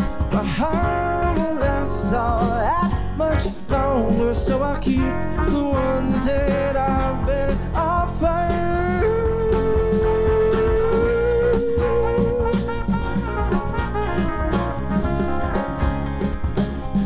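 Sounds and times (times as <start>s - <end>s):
live band playing instrumental: 0.0s - 17.0s.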